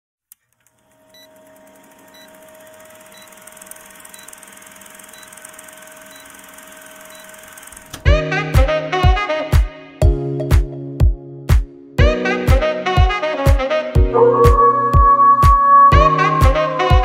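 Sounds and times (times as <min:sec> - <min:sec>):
short high beeps: 0:07.0 - 0:07.4
music with drum beat: 0:08.1 - 0:17.0.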